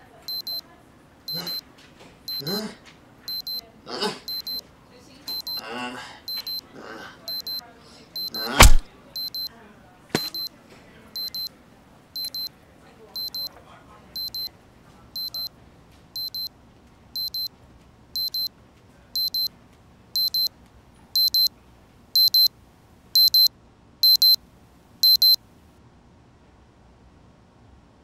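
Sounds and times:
pager double beeping: 0.3 - 0.6, 1.3 - 1.6, 2.3 - 2.6, 3.3 - 3.6, 4.3 - 4.6, 5.3 - 5.6, 6.3 - 6.6, 7.3 - 7.6, 8.2 - 9.5, 10.2 - 10.5, 11.2 - 11.5, 12.2 - 12.5, 13.2 - 13.5, 14.2 - 14.5, 15.2 - 15.5, 16.2 - 16.5, 17.2 - 17.5, 18.2 - 18.5, 19.2 - 19.5, 20.2 - 20.5, 21.2 - 21.5, 22.2 - 22.5, 23.2 - 24.4, 25.0 - 25.4.

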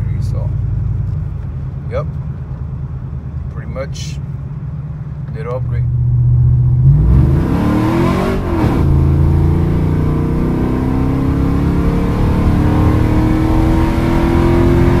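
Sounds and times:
truck engine accelerating: 4.5 - 15.0.

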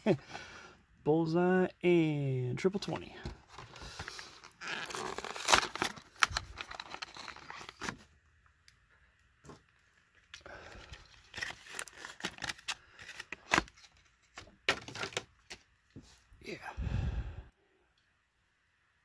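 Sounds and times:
plastic blister pack crinkling: 3.5 - 8.0, 10.2 - 15.6
cardboard tearing: 3.6 - 8.0, 11.0 - 15.6.

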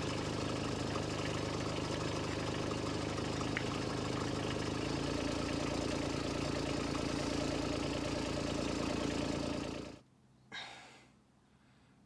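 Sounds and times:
excavator diesel engine idling: 0.0 - 10.0.

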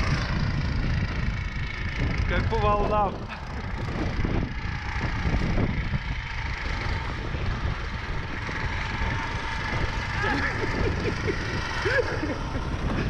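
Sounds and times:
snow vehicle engine running: 0.0 - 13.0
wind buffeting microphone: 0.0 - 13.0.

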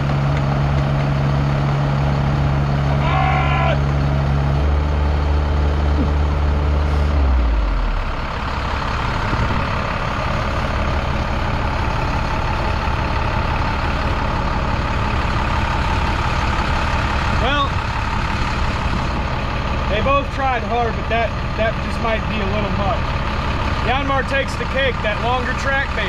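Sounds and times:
diesel engine under heavy load: 0.0 - 26.0
excavator tracks churning: 0.0 - 26.0.

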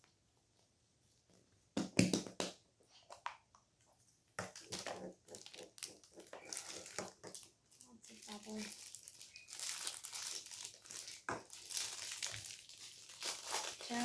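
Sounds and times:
plastic clicking and crinkling: 3.0 - 14.0.

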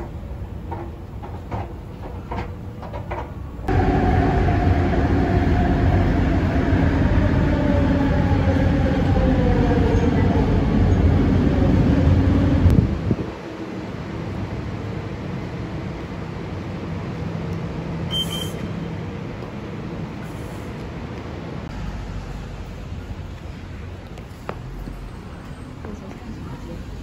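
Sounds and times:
train running rumble with whine: 0.0 - 27.0
station noise: 3.7 - 12.7.

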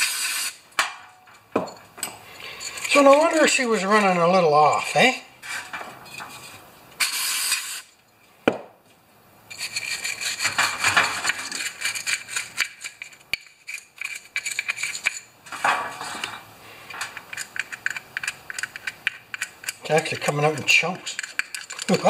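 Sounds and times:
short hiss: 7.0 - 7.9
scraping inside metal bowl: 9.5 - 22.0.

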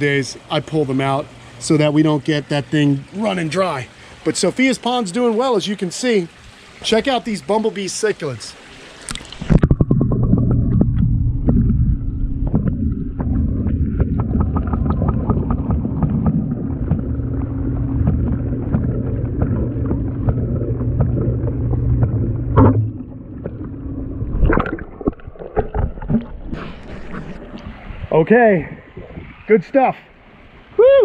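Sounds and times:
water pump hum underwater: 0.0 - 31.0
small clicks and bubbling: 9.0 - 27.7.

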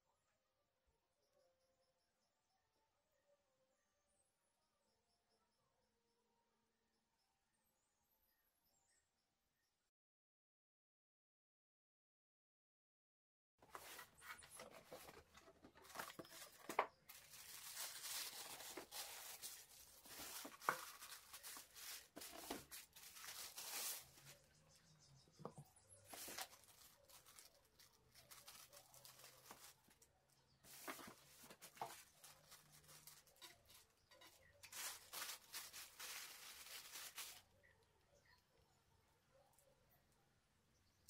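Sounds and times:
plastic bag rustling: 13.6 - 24.4, 26.0 - 30.0, 30.7 - 37.6.

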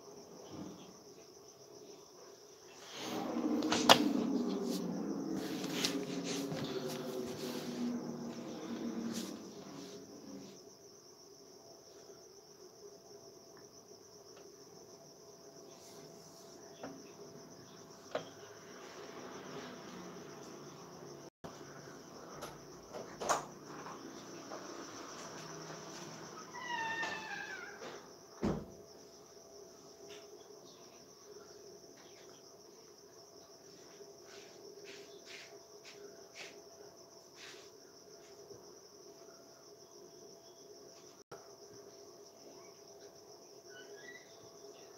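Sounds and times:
crickets chirping: 0.0 - 44.9
soft rustles: 2.8 - 10.6.

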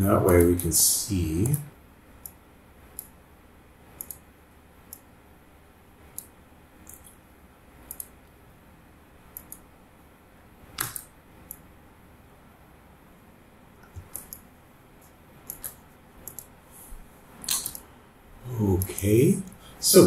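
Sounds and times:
faint steady hiss: 0.0 - 20.0
computer mouse clicking: 2.2 - 3.2, 4.0 - 4.2, 6.1 - 7.2, 7.8 - 8.2, 9.3 - 9.7, 10.8 - 11.6, 13.8 - 14.4, 15.4 - 16.5, 17.4 - 17.9, 18.8 - 19.6.

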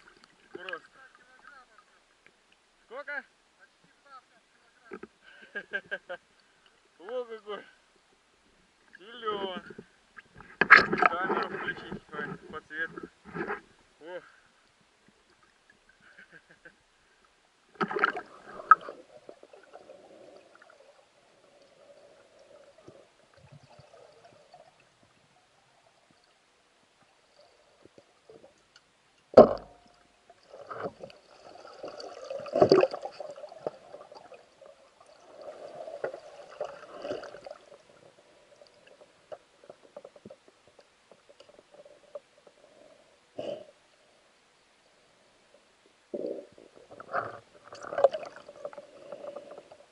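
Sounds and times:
water sloshing and gurgling: 8.8 - 13.8, 17.2 - 43.0, 46.5 - 49.9
splashing: 17.8 - 20.9, 29.3 - 38.1.

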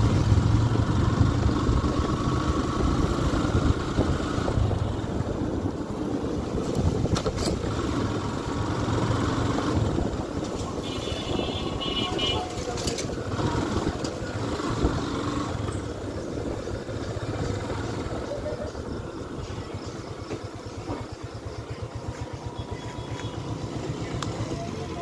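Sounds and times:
road noise: 0.0 - 25.0
small vehicle engine running: 0.0 - 25.0.

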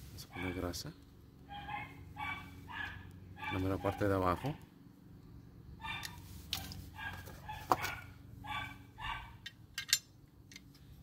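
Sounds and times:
dog barking: 0.3 - 0.8, 1.5 - 4.6, 5.8 - 9.4
metal brake parts clicking: 9.4 - 10.9.

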